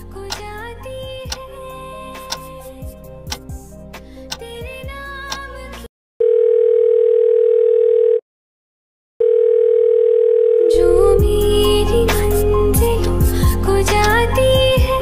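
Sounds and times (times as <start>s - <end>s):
music: 0.0s - 5.9s, 10.8s - 15.0s
telephone ringback tone: 6.2s - 8.2s, 9.2s - 11.0s.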